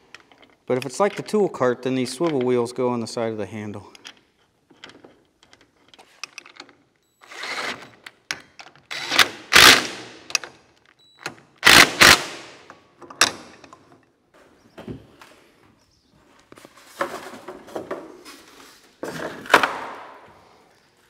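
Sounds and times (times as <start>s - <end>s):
impact driver hammering: 8.9s - 10.3s, 11.6s - 12.7s.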